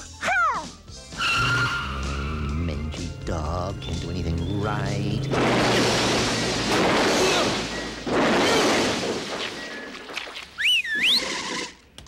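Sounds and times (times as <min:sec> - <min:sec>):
cartoon crashing noise: 0:05.3 - 0:10.2
loud two-fingered whistle: 0:10.6 - 0:11.4.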